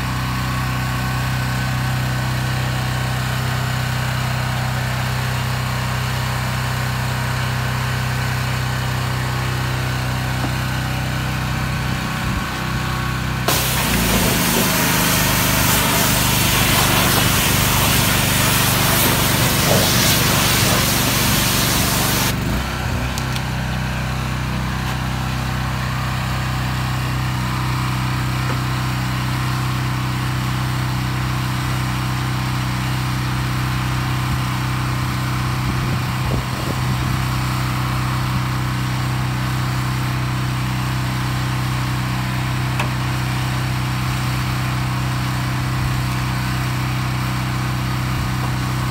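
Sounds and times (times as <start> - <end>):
engine running steadily: 0.0 - 48.9
pressure washer spraying: 13.5 - 22.3.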